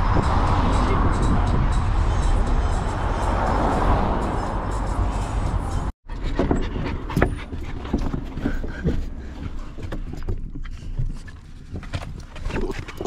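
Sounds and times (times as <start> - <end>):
dogs panting: 6.1 - 11.3
knocks and rustles: 6.2 - 13.0.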